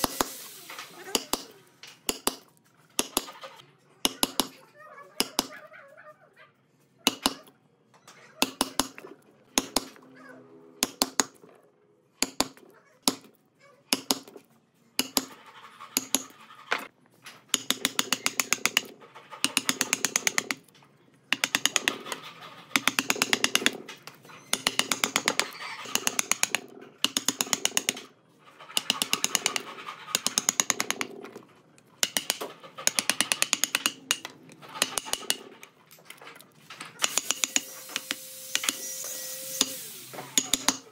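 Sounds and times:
chisel chopping wood: 1.1s - 3.4s, 8.4s - 9.0s, 9.6s - 10.0s, 10.8s - 11.4s, 37.0s - 38.8s, 39.6s - 40.9s.

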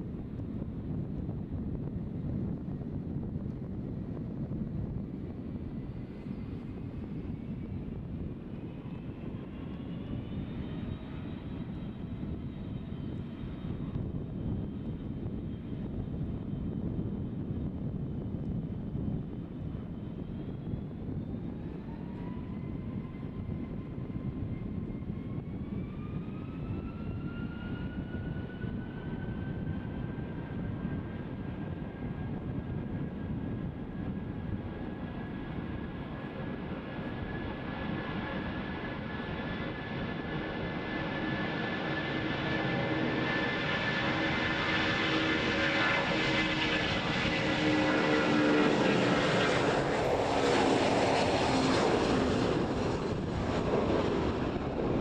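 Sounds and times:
jet engines spooling up: 33.5s - 55.0s.

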